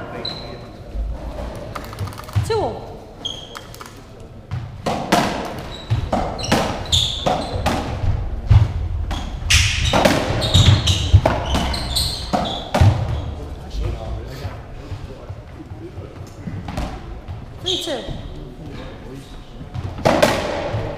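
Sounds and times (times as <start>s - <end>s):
shoes squeaking on wooden floor: 0.0s - 4.8s, 5.4s - 8.1s, 9.1s - 13.6s, 16.4s - 18.7s
ball hits echoing in court: 4.5s - 13.4s, 19.7s - 20.9s.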